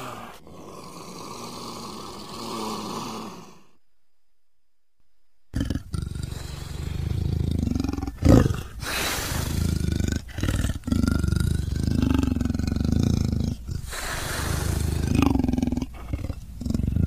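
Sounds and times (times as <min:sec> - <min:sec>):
leopard growling and roaring: 0:05.6 - 0:17.0.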